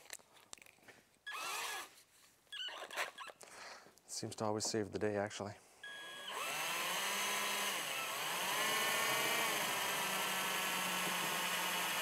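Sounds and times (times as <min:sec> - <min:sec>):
cordless drill drilling metal: 0:01.3 - 0:01.9, 0:05.8 - 0:12.0.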